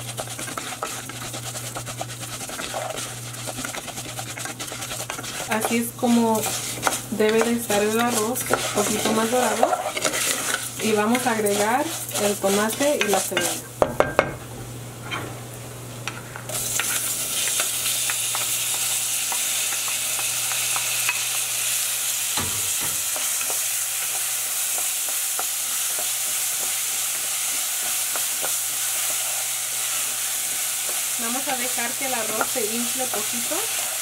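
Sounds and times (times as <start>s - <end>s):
wooden spoon scraping pan: 0.0s - 13.7s, 22.4s - 34.0s
rice frying in hot oil: 0.0s - 14.2s, 16.1s - 34.0s.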